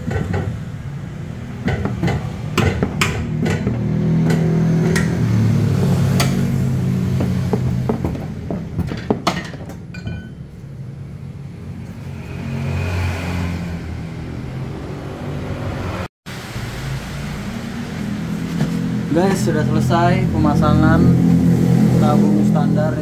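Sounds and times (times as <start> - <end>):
metal tools knocking and clinking: 7.9 - 10.6.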